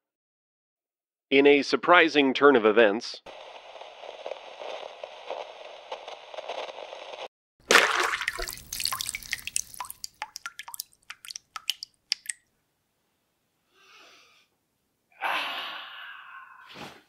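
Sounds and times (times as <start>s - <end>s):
liquid splashing: 7.6s - 12.5s
liquid dripping: 7.7s - 12.5s
man yawning: 15.1s - 16.7s.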